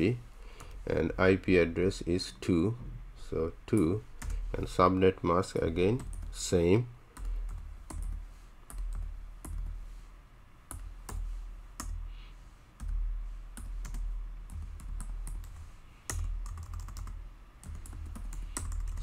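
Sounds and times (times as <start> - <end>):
keyboard typing: 7.2 - 9.8, 12.8 - 19.0.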